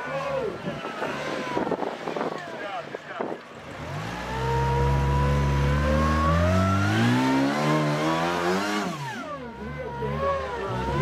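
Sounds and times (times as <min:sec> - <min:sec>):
buggy engine revving hard: 0:03.6 - 0:11.0.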